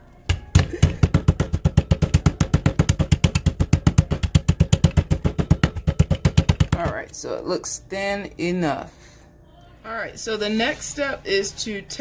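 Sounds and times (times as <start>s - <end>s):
rolling pin pounding meat: 0.2s - 7.1s.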